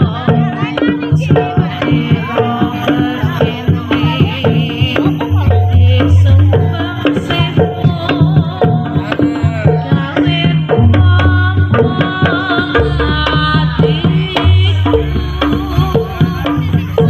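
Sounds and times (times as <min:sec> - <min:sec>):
hand drums beating: 0:00.0 - 0:17.0
high wavering melody: 0:00.5 - 0:07.5, 0:14.0 - 0:17.0.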